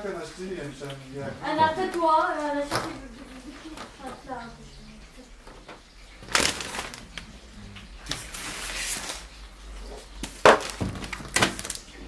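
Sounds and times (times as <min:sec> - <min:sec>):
plastic wrapping rustling: 0:05.5 - 0:12.0.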